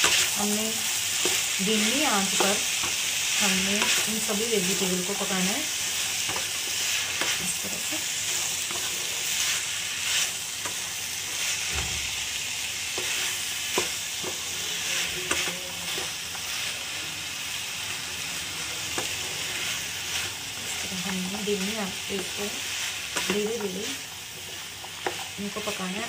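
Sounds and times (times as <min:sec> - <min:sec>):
vegetables frying hiss: 0:00.0 - 0:26.0
spatula scraping and knocking pan: 0:01.2 - 0:04.8, 0:12.9 - 0:16.5, 0:18.9 - 0:25.8.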